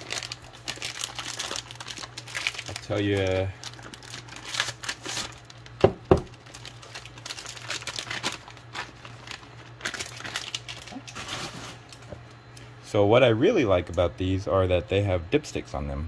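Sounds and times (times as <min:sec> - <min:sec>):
plastic bag crinkling: 0:00.0 - 0:12.1.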